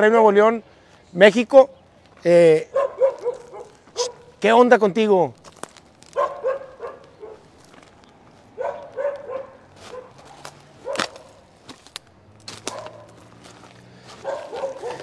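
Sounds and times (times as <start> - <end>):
dog barking: 2.6 - 4.4, 6.1 - 7.5, 8.5 - 11.4, 12.6 - 13.2, 14.1 - 15.0.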